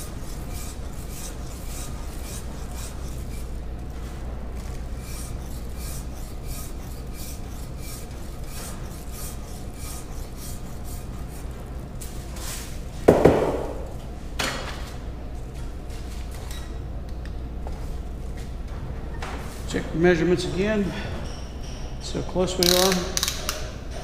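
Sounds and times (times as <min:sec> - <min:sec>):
rasp shaving plaster: 0:00.0 - 0:11.9
loud knocks: 0:13.1 - 0:13.8.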